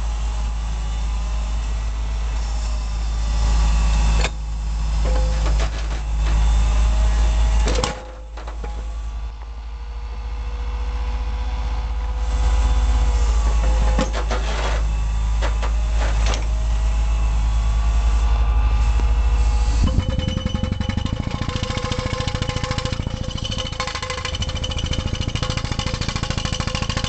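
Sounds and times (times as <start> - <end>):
rock auger rumbling: 5.0 - 6.6, 13.4 - 16.5, 19.8 - 27.0.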